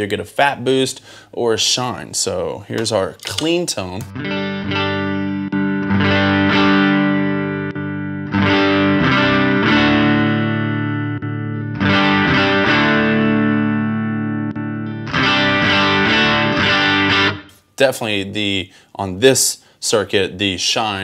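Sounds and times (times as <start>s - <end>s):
clean electric guitar chords: 4.0s - 17.6s.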